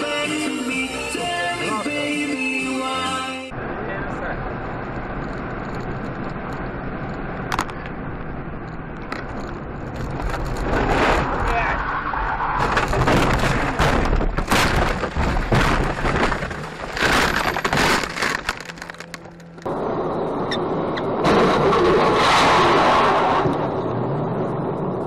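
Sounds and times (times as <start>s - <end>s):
car crashing and tumbling: 9.3s - 19.6s.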